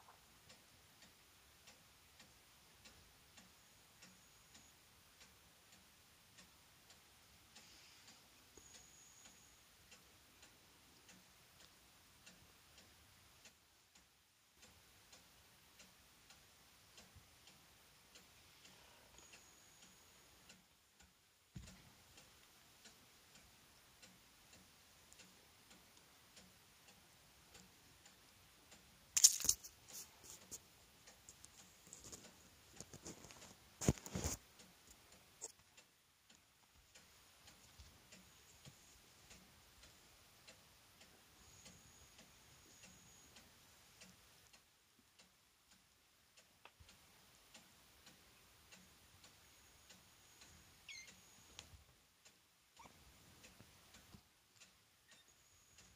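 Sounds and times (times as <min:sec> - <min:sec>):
faint regular ticking: 0:00.0 - 0:55.9
rustles and bumps on microphone: 0:32.8 - 0:34.4.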